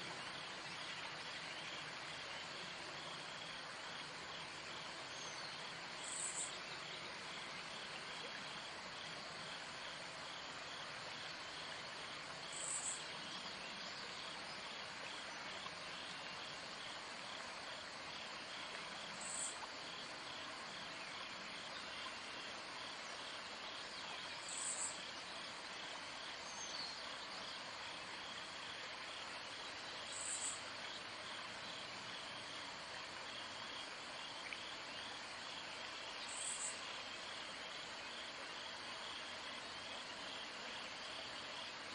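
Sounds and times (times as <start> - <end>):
insects trilling: 0.3 - 41.9
short high insect call: 24.4 - 25.0, 30.1 - 31.0, 36.2 - 36.9.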